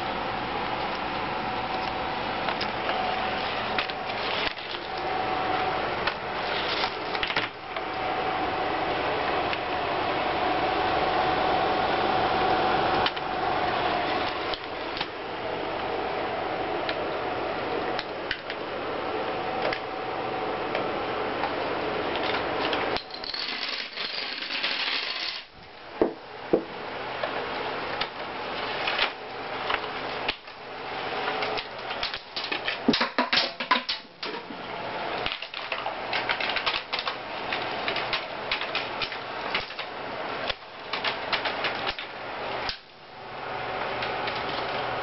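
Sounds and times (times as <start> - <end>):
marble rolling on paper track: 23.1 - 25.5.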